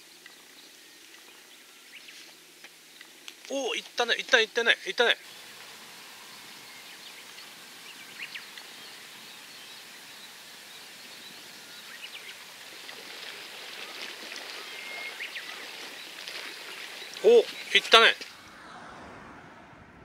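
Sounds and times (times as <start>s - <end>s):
seaside ambience hiss: 0.0s - 18.6s
faint high chirps: 14.5s - 15.7s.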